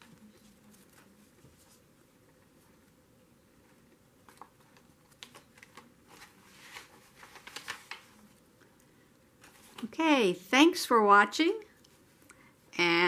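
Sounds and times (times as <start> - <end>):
paper cards rustling and tapping: 3.7 - 8.2.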